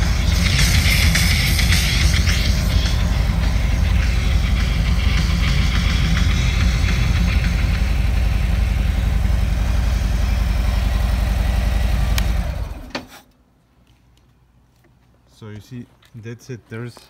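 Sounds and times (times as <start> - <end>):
motorcycle engine idling: 0.0 - 12.9.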